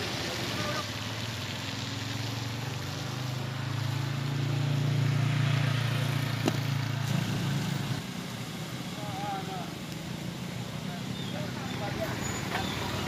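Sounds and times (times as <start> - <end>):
vehicle engine humming: 0.0 - 13.0.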